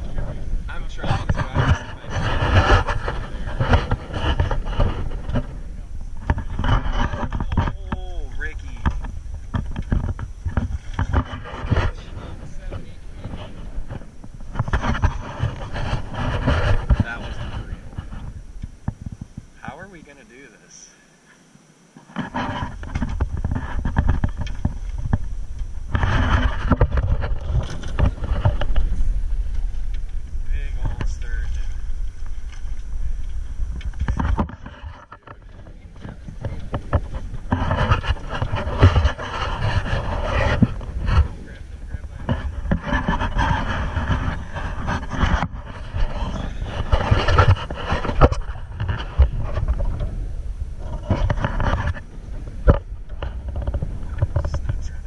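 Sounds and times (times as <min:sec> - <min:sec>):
water slapping boat hull: 0:00.0 - 0:19.4
wind rumble on microphone: 0:00.0 - 0:19.7, 0:22.1 - 0:55.0.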